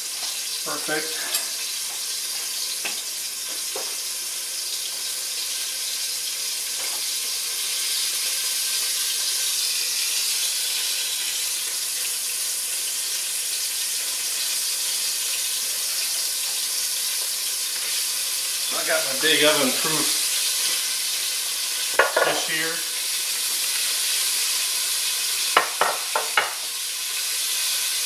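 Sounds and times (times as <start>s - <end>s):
chicken frying in oil: 0.0s - 28.0s.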